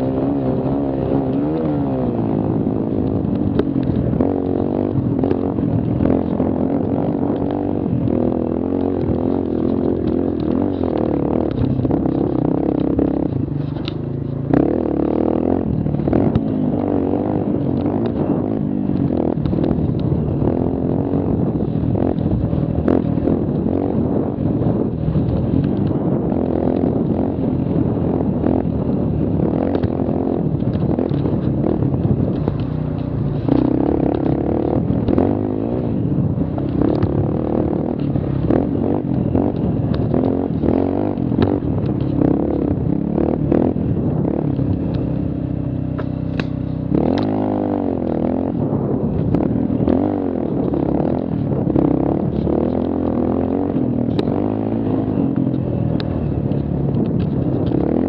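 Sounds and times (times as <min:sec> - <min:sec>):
small quad engine revving: 0:00.0 - 0:58.0.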